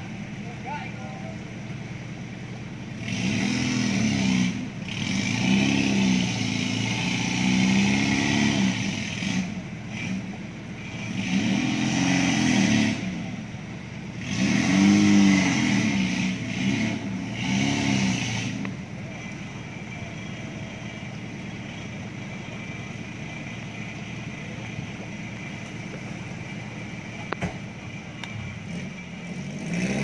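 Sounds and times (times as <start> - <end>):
engine revving hard: 3.0 - 10.3, 10.9 - 13.3, 14.2 - 18.7, 28.6 - 30.0.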